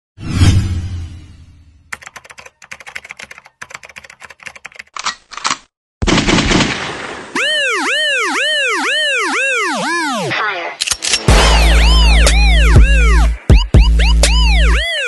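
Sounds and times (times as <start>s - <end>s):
rapid irregular clicking: 2.0s - 5.6s.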